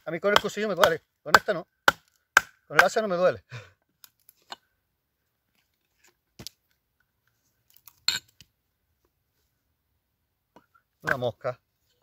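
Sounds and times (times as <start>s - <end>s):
hatchet chopping wood: 0.3s - 3.0s.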